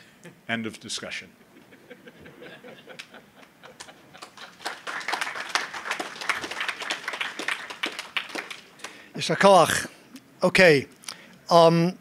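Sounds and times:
audience applauding: 0:03.7 - 0:09.1.

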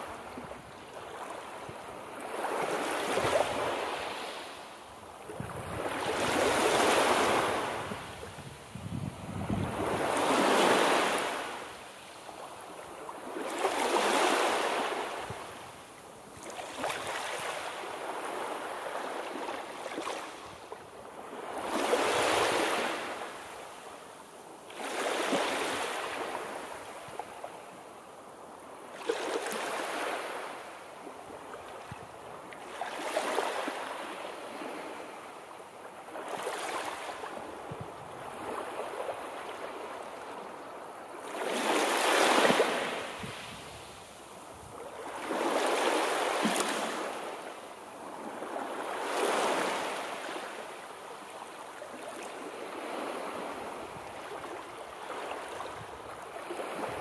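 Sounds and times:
waves breaking and washing in: 0:00.0 - 0:57.0.

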